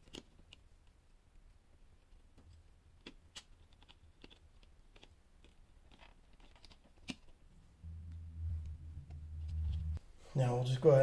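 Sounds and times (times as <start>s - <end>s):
low hum: 7.8s - 10.0s.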